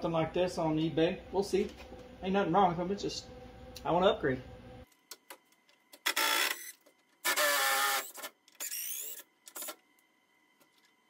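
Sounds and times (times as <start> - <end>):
cordless driver spinning screws: 6.1 - 9.8.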